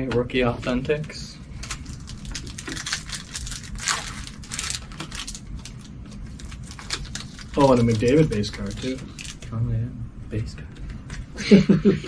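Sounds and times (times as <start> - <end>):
cards and wrappers rustling: 1.6 - 9.5.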